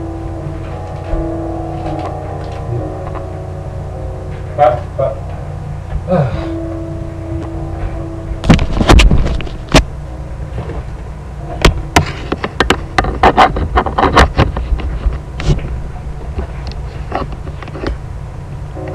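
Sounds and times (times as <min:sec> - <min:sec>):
knocks and clicks: 0:11.6 - 0:15.8.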